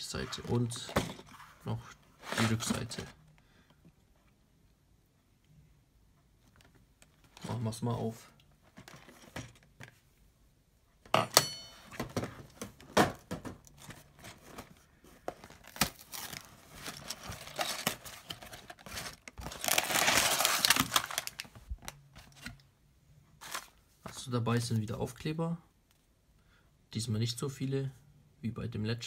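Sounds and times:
cardboard box tearing: 15.6s - 21.4s
plastic bag crinkling: 15.6s - 22.0s.

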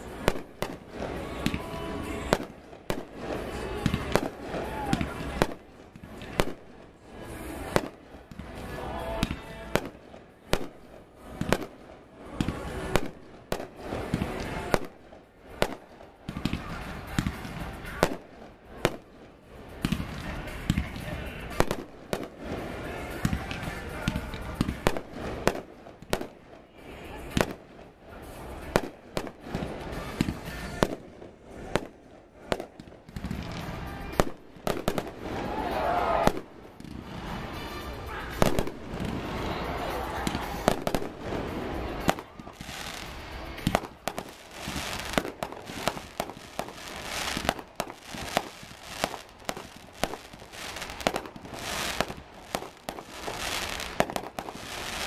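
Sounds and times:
firework shells bursting: 28.6s - 55.0s.

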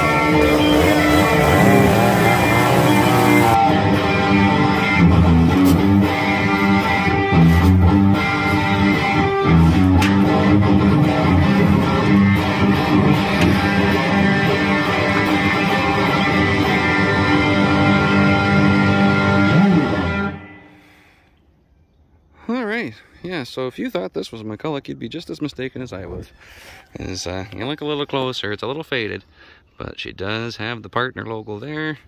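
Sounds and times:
chainsaw engine cutting: 0.0s - 3.7s, 11.1s - 20.4s
strummed electric guitar music: 0.0s - 20.8s.

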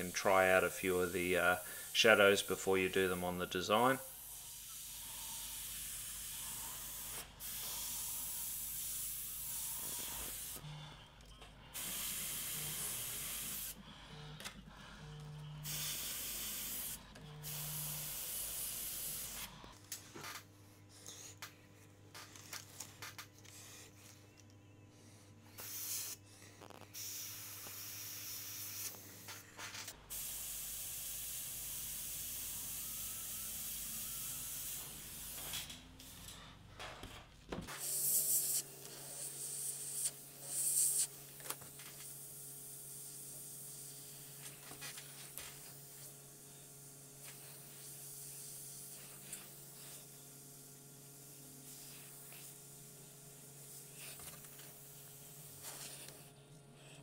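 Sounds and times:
airbrush hissing in bursts: 0.0s - 10.6s, 11.8s - 13.8s, 15.6s - 19.6s, 25.5s - 26.2s, 27.0s - 29.2s, 30.1s - 36.2s, 37.8s - 41.2s, 42.6s - 44.5s, 51.1s - 52.6s.

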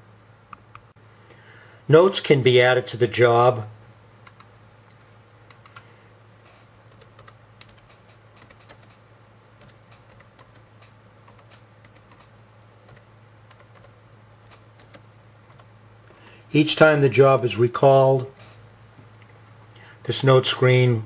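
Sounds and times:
steady low hum: 0.0s - 21.0s
laptop keyboard keystrokes: 4.2s - 4.5s, 5.5s - 5.9s, 6.9s - 9.0s, 9.6s - 12.3s, 12.9s - 16.4s.

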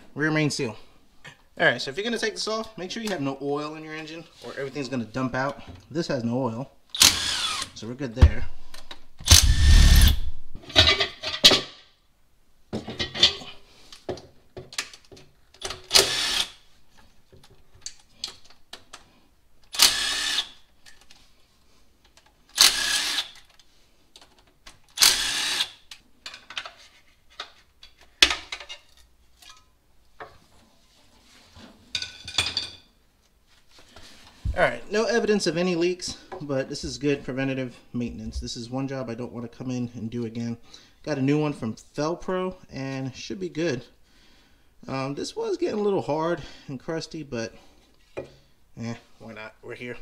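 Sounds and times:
power tool bursts: 7.0s - 7.7s, 9.2s - 10.3s, 15.9s - 16.6s, 19.7s - 20.6s, 22.6s - 23.4s, 25.0s - 25.8s.

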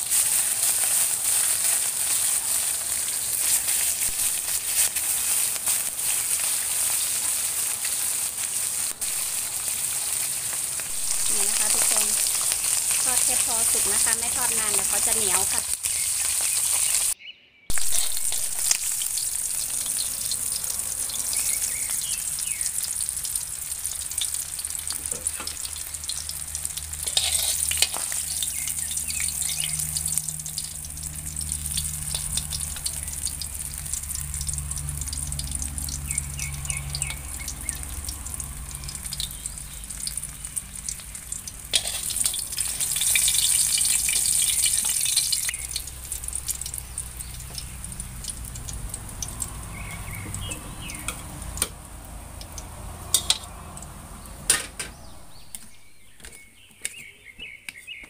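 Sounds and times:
fish sizzling in hot oil: 0.0s - 56.0s
metal tongs clicking on wok: 27.0s - 28.2s, 41.7s - 42.4s, 50.4s - 51.8s, 52.4s - 53.5s.

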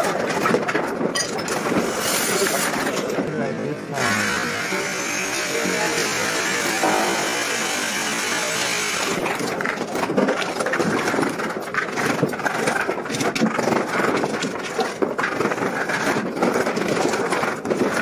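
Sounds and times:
machine running: 3.9s - 9.8s
tools knocking on timber: 6.8s - 8.3s.

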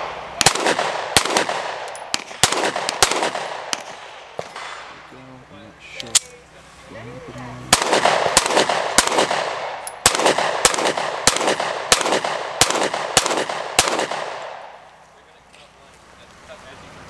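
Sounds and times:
pistol shots with echo: 0.0s - 4.9s, 7.7s - 14.8s.

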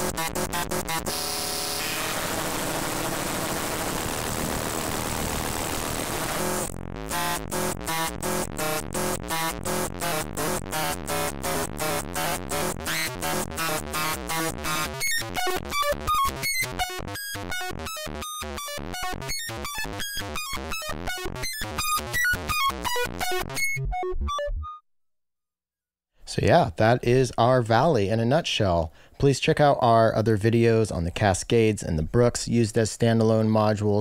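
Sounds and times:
buzzy synthesizer sequence: 0.0s - 24.7s.

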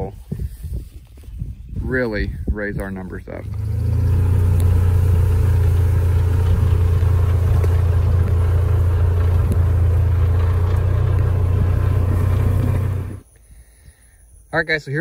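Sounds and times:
vehicle engine humming: 3.3s - 13.2s.

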